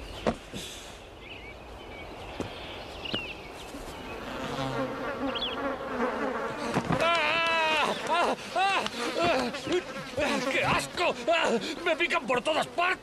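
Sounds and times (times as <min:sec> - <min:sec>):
bird chirps: 0:01.2 - 0:04.3, 0:05.2 - 0:05.7
bees buzzing: 0:03.7 - 0:13.0.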